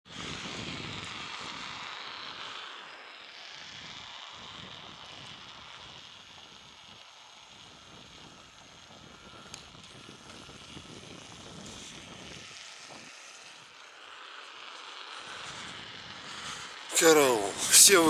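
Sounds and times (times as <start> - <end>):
tyre and wind noise: 0.1 - 1.8, 7.9 - 13.2.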